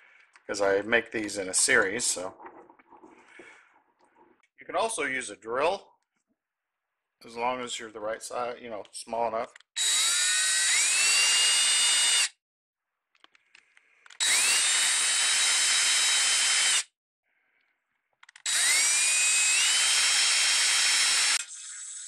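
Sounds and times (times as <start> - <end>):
electric drill whining into wood: 9.8 - 12.3, 14.1 - 16.9, 18.3 - 22.0.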